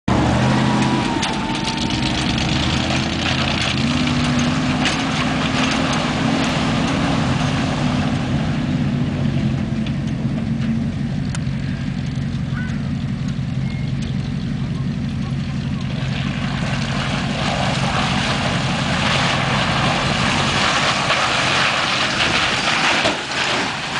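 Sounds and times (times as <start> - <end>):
pickup truck engine running: 0.1 - 23.9
water splashing: 16.0 - 23.9.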